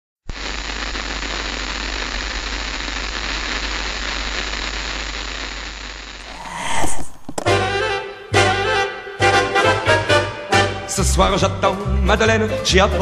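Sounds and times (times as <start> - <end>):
static hiss: 0.3 - 8.0
low hum: 6.2 - 7.7.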